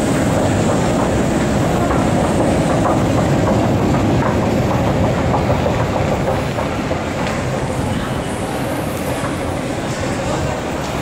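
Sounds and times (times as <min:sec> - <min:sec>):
rhythmic clatter: 0:00.0 - 0:07.9
metro machinery rumbling: 0:00.0 - 0:11.0.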